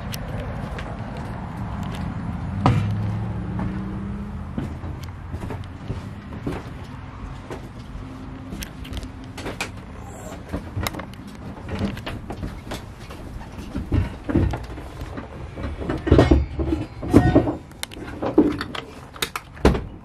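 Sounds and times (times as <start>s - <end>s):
footsteps in trailer: 0.0s - 17.7s.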